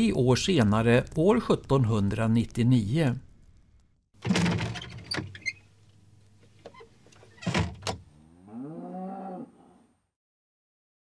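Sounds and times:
cow mooing: 8.2s - 10.0s.

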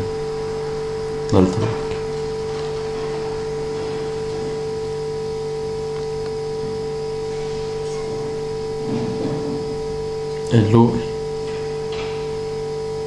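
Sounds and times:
constant low hiss: 0.0s - 13.0s
electrical hum: 0.0s - 13.0s.

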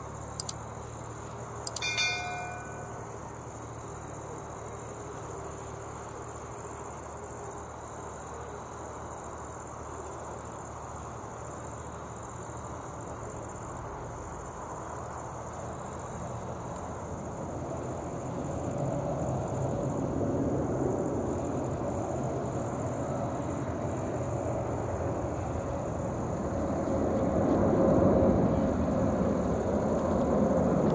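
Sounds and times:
steady outdoor hum: 0.0s - 30.9s
bell chime: 1.7s - 3.1s.

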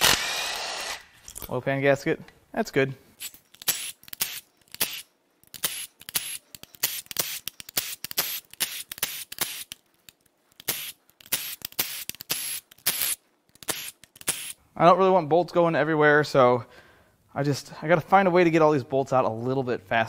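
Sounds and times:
impact wrench hammering: 0.0s - 1.2s.

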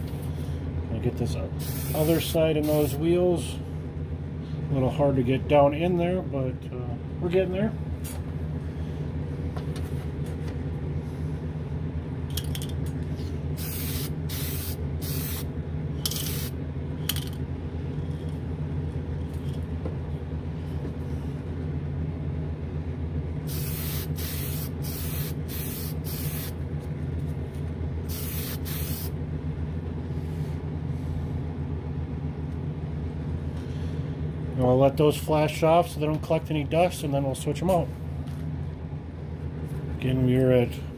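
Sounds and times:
exhaust fan humming: 0.0s - 40.9s
spray can hissing bursts: 1.6s - 3.0s, 13.6s - 15.5s, 16.1s - 16.6s, 23.5s - 26.6s, 28.1s - 29.1s.

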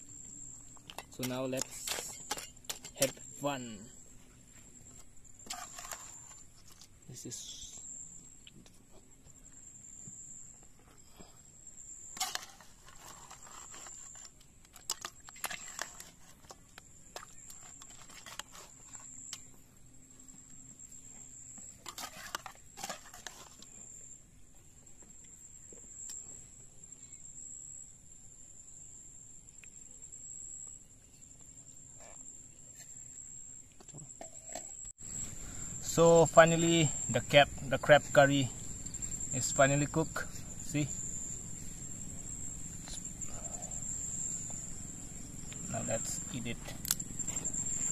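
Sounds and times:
high-pitched insect trill: 0.0s - 47.9s
metal spoon scraping pot: 5.4s - 6.5s.

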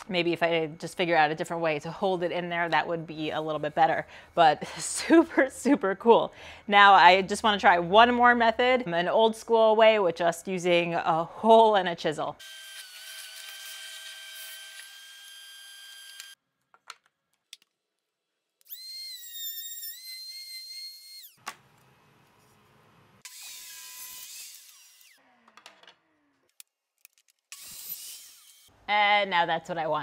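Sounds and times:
table saw whine and cutting: 12.4s - 16.4s, 23.2s - 25.2s.

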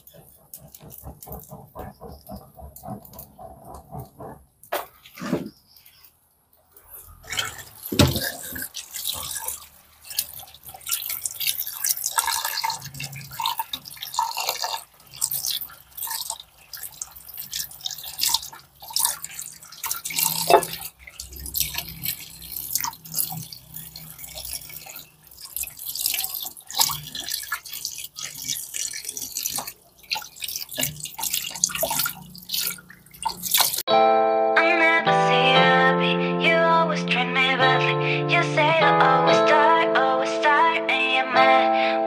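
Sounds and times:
tap water splashing into metal pot: 7.3s - 33.8s.

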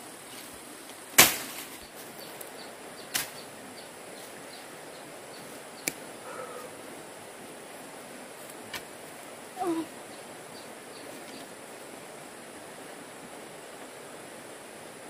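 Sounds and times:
sharp chopping strikes: 1.2s - 1.7s.

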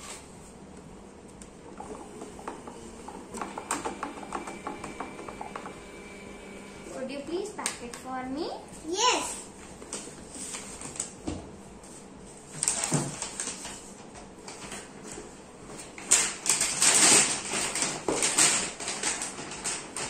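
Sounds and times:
paper bag rustling and crinkling: 12.5s - 14.9s, 15.9s - 20.0s.

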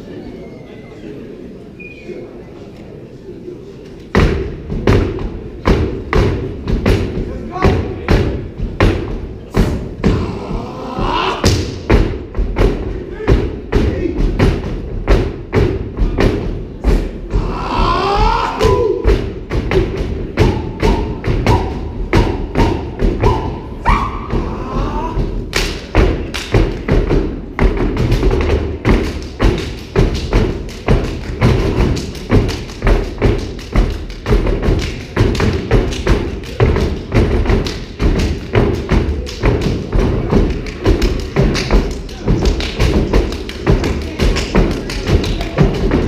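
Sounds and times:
people clapping in unison: 25.2s - 27.0s, 28.0s - 46.0s.

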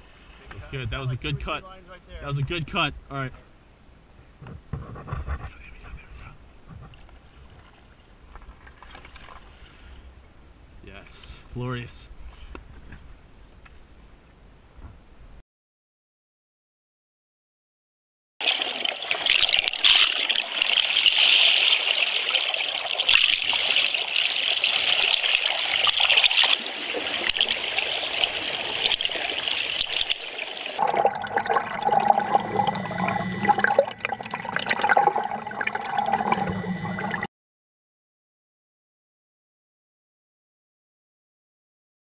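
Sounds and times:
low hum: 30.8s - 37.3s.

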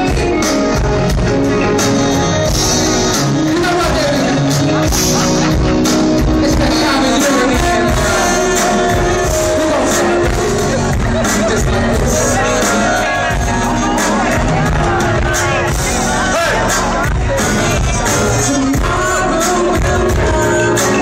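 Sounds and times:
lead singer singing: 0.0s - 21.0s
live band playing: 0.0s - 21.0s.

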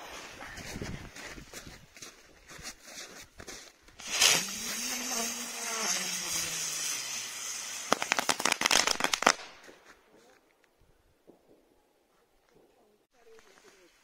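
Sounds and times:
firework rushing hiss: 4.0s - 9.5s
firework crackling pops: 4.0s - 10.0s.

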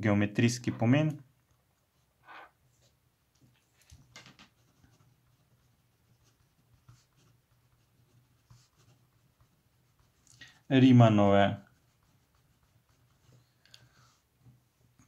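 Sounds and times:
pen scratching on paper: 4.4s - 14.6s.

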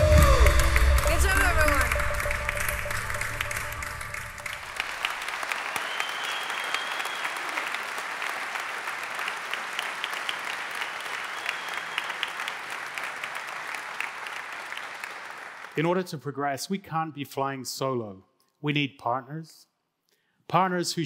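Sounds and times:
music: 0.0s - 4.7s
audience applauding: 0.0s - 16.1s.

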